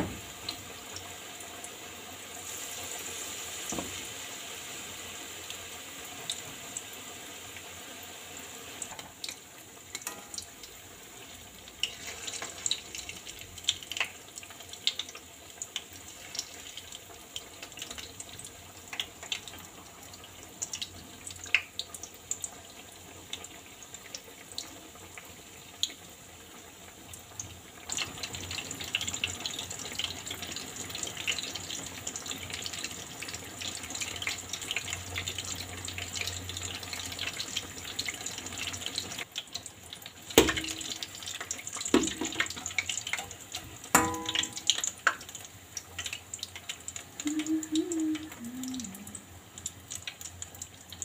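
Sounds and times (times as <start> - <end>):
fritters sizzling in oil: 0.0 - 51.0
metal skimmer knocking pan: 10.0 - 10.5, 40.4 - 41.0, 43.9 - 44.8.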